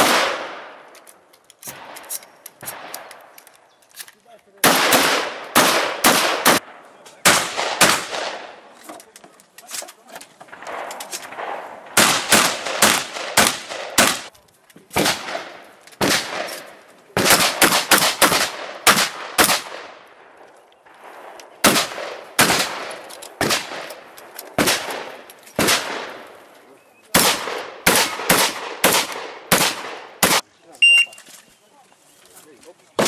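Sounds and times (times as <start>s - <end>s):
shotgun shots with echo: 0.0s - 0.8s, 4.6s - 8.6s, 10.5s - 14.3s, 15.0s - 16.6s, 17.2s - 20.0s, 21.6s - 23.9s, 24.6s - 26.2s, 27.2s - 30.4s.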